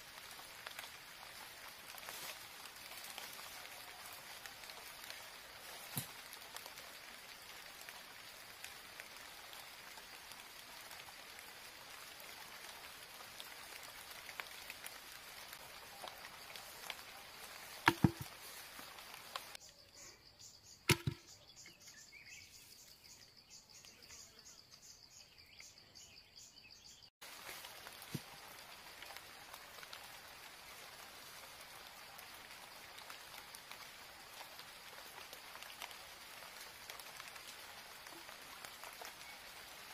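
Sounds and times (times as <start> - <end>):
knocks on bamboo: 17.8 - 18.4, 20.9 - 21.3.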